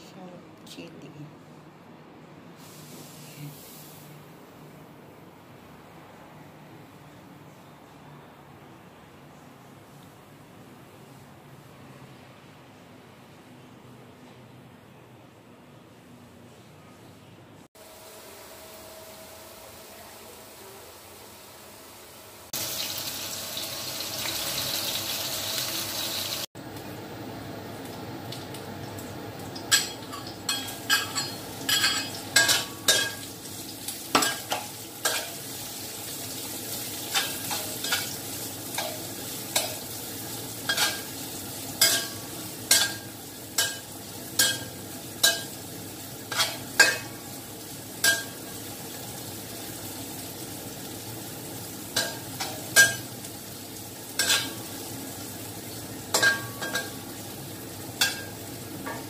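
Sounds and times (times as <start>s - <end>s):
food sizzling in oil: 2.6s - 4.2s, 17.8s - 59.0s.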